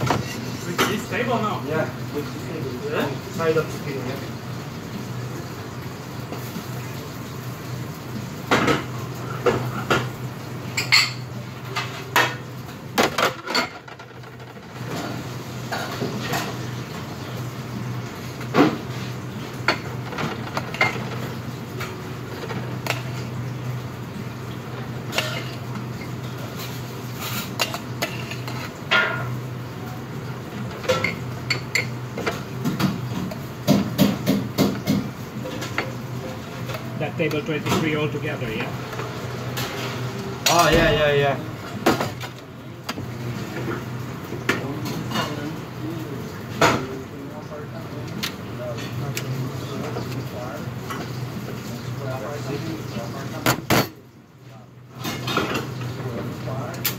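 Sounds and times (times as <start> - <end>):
pots and pans clanking: 8.4 - 17.0, 18.4 - 23.4, 25.0 - 29.4.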